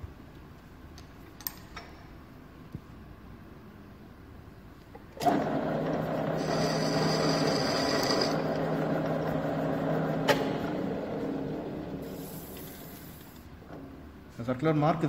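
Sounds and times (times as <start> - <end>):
lathe running with low hum: 5.2 - 13.9
high squeal of cutting tool: 6.4 - 9.4.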